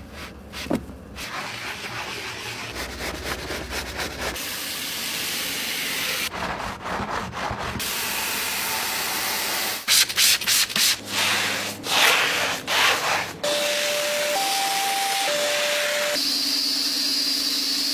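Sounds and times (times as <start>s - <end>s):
scrubbing strokes on floor mat: 10.5s - 13.4s
wet vacuum whining: 11.0s - 16.2s.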